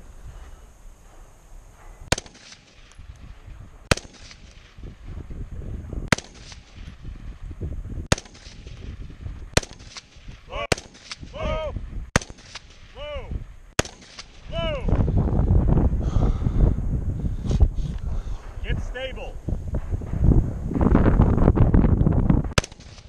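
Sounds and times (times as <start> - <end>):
rifle shots with echo: 2.1 - 5.3, 6.0 - 7.4, 8.0 - 14.9, 22.4 - 23.0.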